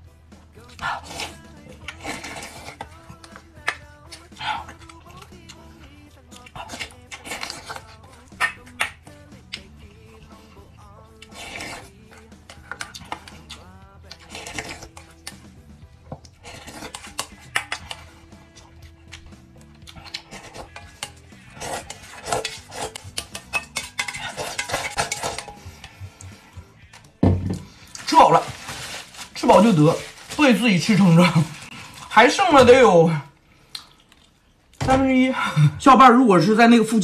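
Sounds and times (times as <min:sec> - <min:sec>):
spoon scraping a steel bowl: 0:11.2 - 0:13.3, 0:20.2 - 0:26.0.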